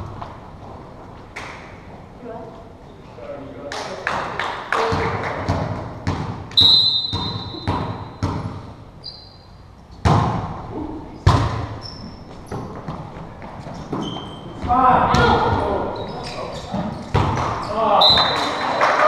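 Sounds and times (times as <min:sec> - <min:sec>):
volleyball thumps: 0:04.9 - 0:08.8, 0:10.0 - 0:11.8, 0:13.9 - 0:15.8, 0:16.7 - 0:18.4
sneakers squeaking on floor: 0:06.0 - 0:10.0, 0:10.8 - 0:18.6.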